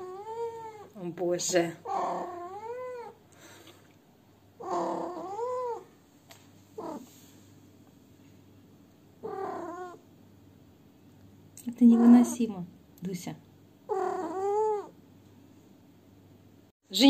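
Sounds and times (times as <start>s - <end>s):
cat yowling: 0.0s - 0.9s, 1.8s - 3.2s, 4.6s - 5.9s, 6.8s - 7.1s, 9.2s - 10.0s, 13.9s - 15.0s.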